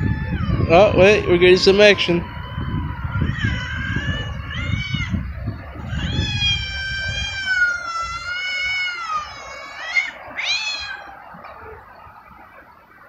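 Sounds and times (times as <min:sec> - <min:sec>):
cat yowling: 0:00.0 - 0:01.0, 0:02.8 - 0:11.4.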